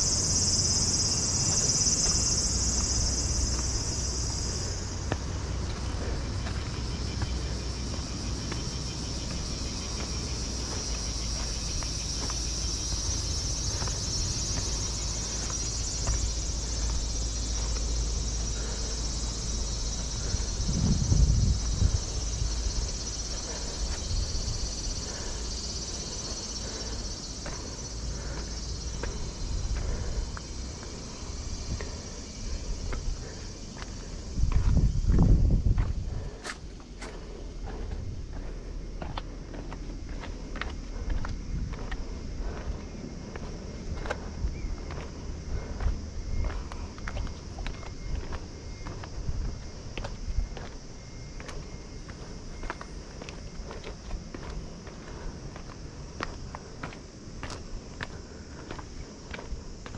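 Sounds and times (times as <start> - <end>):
insects chirring: 0.0 - 59.9
footsteps tapping: 9.2 - 18.8, 31.8 - 44.2.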